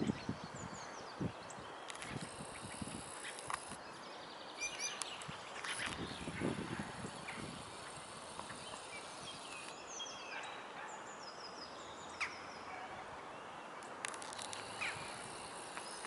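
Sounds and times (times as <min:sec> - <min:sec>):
small birds chirping: 0:00.0 - 0:16.0
faint clicks: 0:13.8 - 0:16.0.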